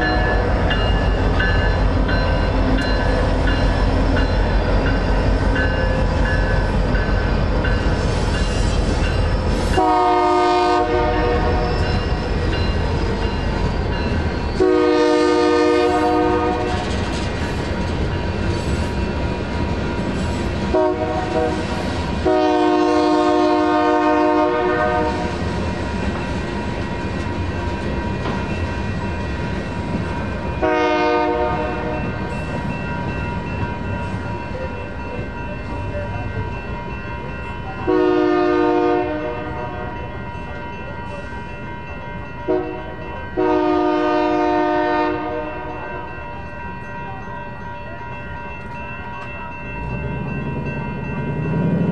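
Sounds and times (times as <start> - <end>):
crossing bell ringing: 0.0 - 51.9
freight train rumbling: 0.0 - 51.9
train horn blasts: 9.7 - 11.8, 14.6 - 16.9, 20.7 - 25.4, 30.6 - 32.0, 37.8 - 39.8, 42.5 - 45.8.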